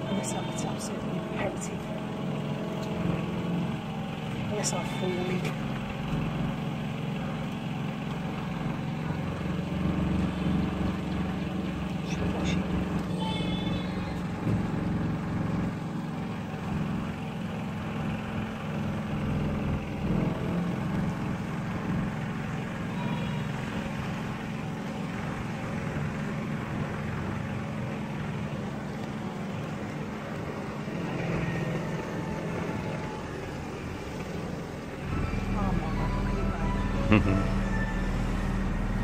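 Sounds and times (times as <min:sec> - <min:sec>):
motorboat engine droning: 0:00.0 - 0:39.0.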